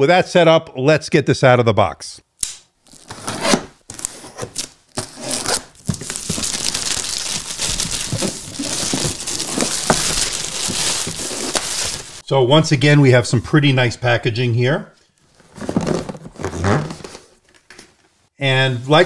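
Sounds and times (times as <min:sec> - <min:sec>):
plastic wrap crinkling and tearing: 0:02.8 - 0:12.2.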